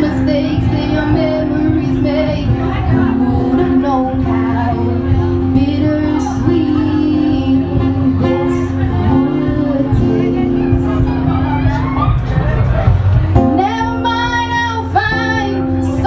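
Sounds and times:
person singing: 0.0 - 12.1.

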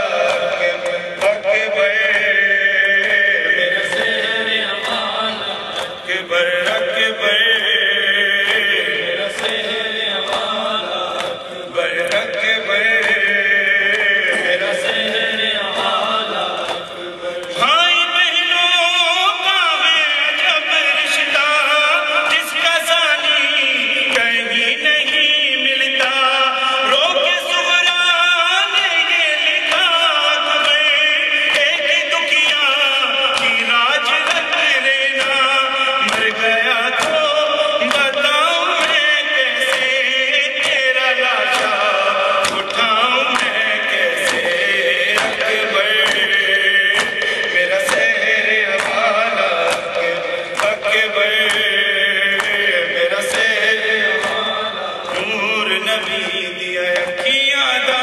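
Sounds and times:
man chanting through a microphone: 0.0 - 58.0
hands slapping chests: 36.0 - 36.4, 40.6 - 56.4.

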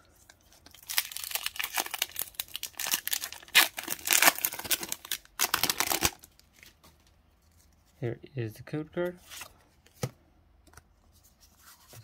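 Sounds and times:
foil wrapper crinkling and tearing: 0.2 - 6.7.

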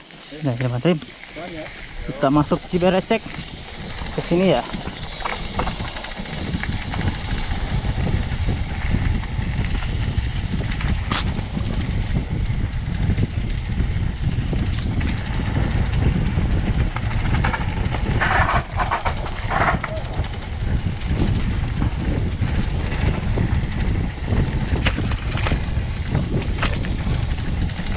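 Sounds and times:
bike rattling over bumps: 0.0 - 27.9
bike tyres rumbling on dirt: 0.0 - 27.9.

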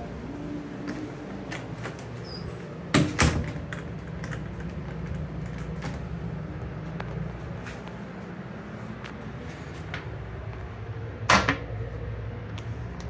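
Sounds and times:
steady low hum: 0.0 - 13.0
restroom door clicks: 1.4 - 4.6.

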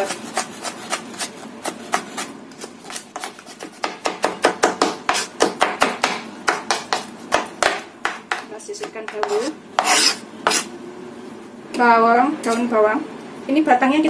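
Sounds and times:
knife chopping on wooden board: 0.0 - 10.7.

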